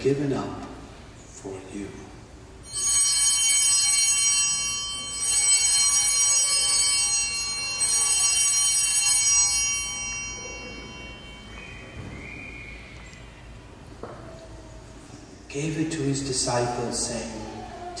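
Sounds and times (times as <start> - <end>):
altar bells ringing: 2.6 - 14.4.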